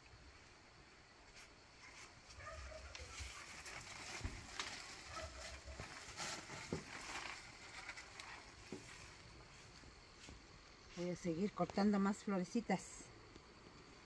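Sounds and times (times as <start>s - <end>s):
plant leaves rustling and crackling: 1.2s - 12.2s.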